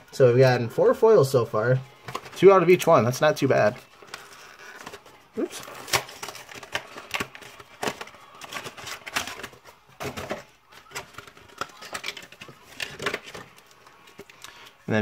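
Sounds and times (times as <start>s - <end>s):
foil wrapper crinkling and tearing: 4.0s - 13.7s.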